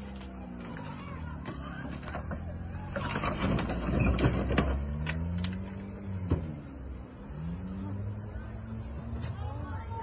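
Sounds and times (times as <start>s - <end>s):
car engine revving: 2.6s - 9.9s.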